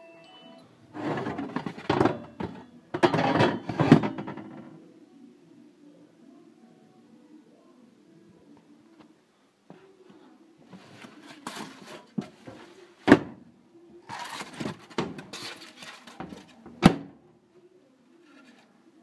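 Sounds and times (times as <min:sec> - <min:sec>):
rustling and handling noise: 0:00.9 - 0:04.7, 0:08.5 - 0:13.3, 0:14.0 - 0:16.9, 0:18.1 - 0:19.0
metal oven doors banging shut: 0:01.0 - 0:04.7.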